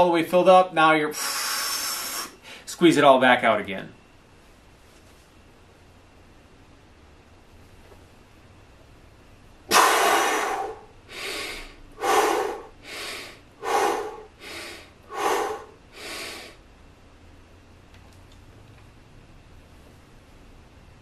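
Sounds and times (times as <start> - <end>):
man breathing hard: 1.1 - 2.7, 9.7 - 16.6.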